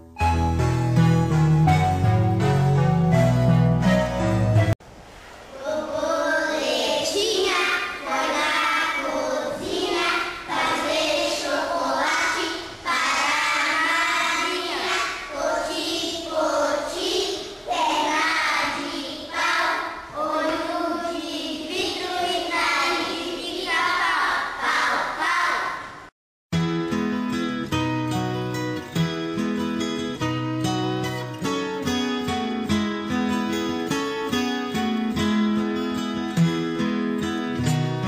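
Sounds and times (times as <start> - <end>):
short music: 0.0 - 4.8
children singing together: 5.5 - 26.1.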